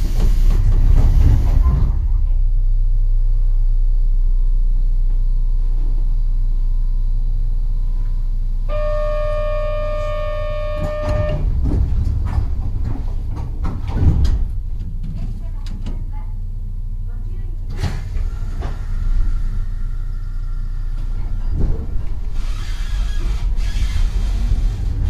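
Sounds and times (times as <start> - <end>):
knocks and clatter: 0.0 - 2.4, 10.8 - 16.1
train humming: 0.0 - 25.0
electronic buzzer tone: 8.7 - 11.5.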